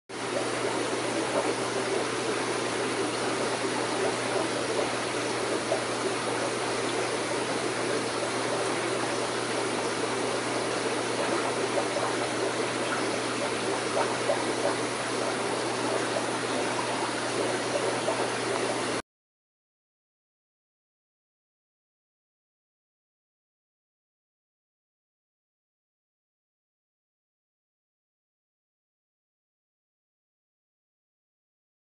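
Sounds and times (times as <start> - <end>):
aquarium water trickling: 0.2 - 19.0
constant low hum: 0.2 - 19.0.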